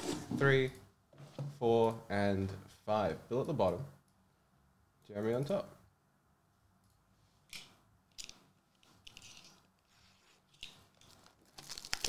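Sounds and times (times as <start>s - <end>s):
foil packs rustling on a table: 11.0s - 12.0s.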